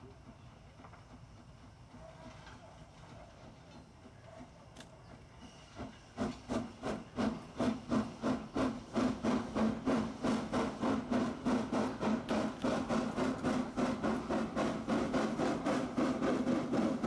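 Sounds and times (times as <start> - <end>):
steam locomotive chuffing: 0.0 - 17.0.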